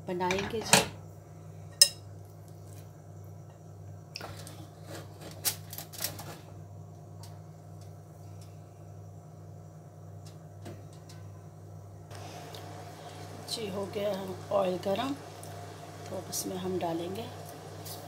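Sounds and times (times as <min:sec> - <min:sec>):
steady low hum: 0:06.2 - 0:18.0
oil ticking and crackling: 0:12.1 - 0:18.0.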